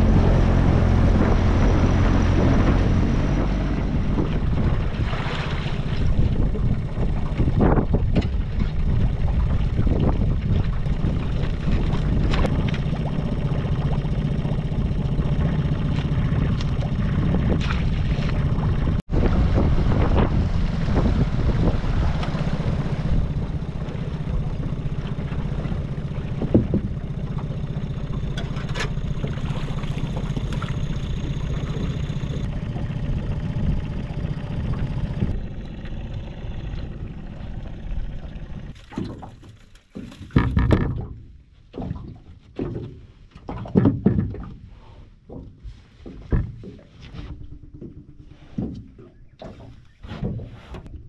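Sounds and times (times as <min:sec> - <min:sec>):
boat motor rumble: 0:00.0 - 0:51.0
wind: 0:00.0 - 0:51.0
knocks and rattles in metal boat: 0:02.3 - 0:13.1, 0:22.2 - 0:35.4, 0:38.4 - 0:51.0.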